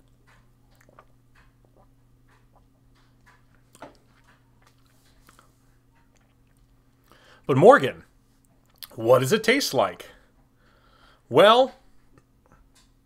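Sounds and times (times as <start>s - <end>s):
low steady hum: 0.0s - 13.0s
mouth clicks tasting a drink: 8.7s - 9.0s.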